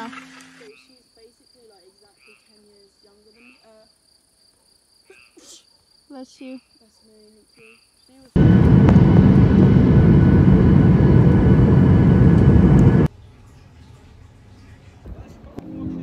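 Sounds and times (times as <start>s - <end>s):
crickets chirring: 0.6s - 8.4s.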